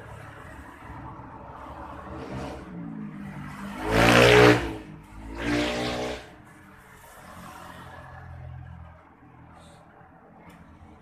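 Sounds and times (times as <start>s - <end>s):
engine revving: 1.9s - 6.5s.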